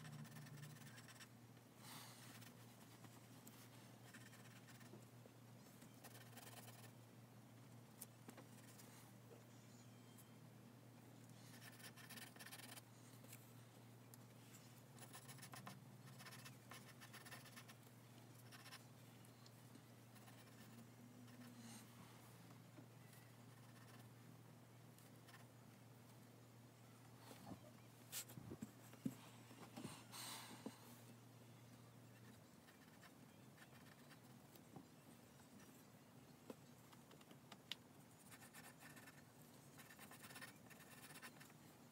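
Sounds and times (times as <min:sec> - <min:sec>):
pencil scratching on paper: 0:00.0 - 0:01.3, 0:04.0 - 0:04.9, 0:06.0 - 0:06.9, 0:11.5 - 0:12.8, 0:15.0 - 0:17.8, 0:18.4 - 0:18.8, 0:20.2 - 0:21.6, 0:23.5 - 0:24.0, 0:32.2 - 0:34.2, 0:38.2 - 0:41.5.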